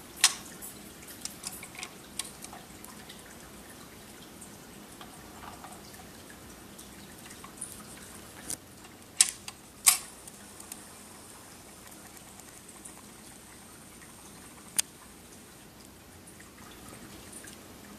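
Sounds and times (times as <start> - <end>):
turntable mechanism clicking: 8.5 - 10.8.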